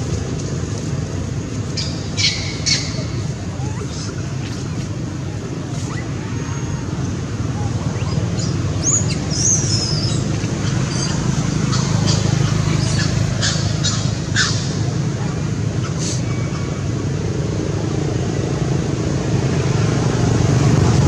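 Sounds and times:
high gliding bird chirps: 7.6s - 14.6s.

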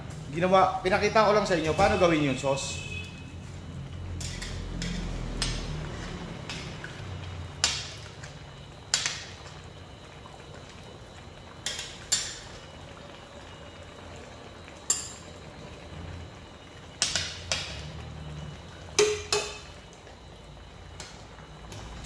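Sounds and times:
simmering pot rumble: 0.0s - 22.0s
metal ladle clinking in pot: 19.0s - 19.7s.

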